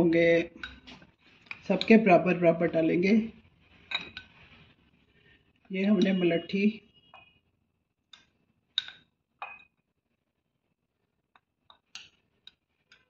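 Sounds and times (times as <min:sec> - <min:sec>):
spoon clinking against glass jar: 0:03.9 - 0:04.3, 0:08.8 - 0:09.7.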